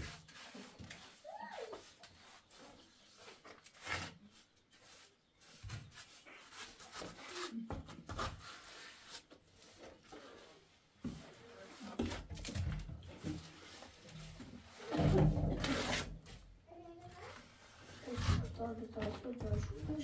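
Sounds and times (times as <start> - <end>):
trowel scraping wet mortar: 0.0 - 16.3.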